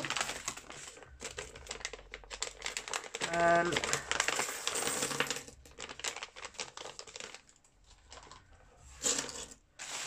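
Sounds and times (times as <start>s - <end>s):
coins clicking on tabletop: 4.4s - 5.5s.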